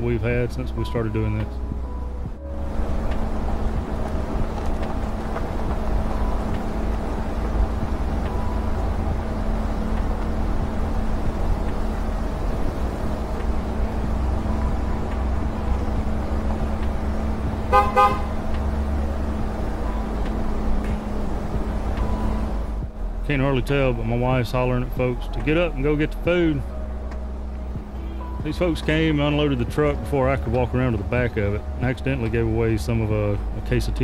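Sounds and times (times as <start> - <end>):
vehicle driving over gravel: 2.6 - 17.6
short horn toot: 17.7 - 18.3.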